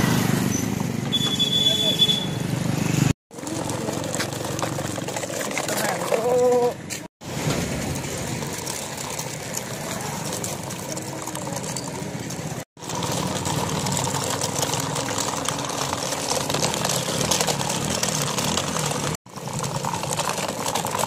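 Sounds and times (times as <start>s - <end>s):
toy tractor motor running: 3.3s - 6.6s, 12.8s - 21.0s
wheels rolling on floor: 3.3s - 21.0s.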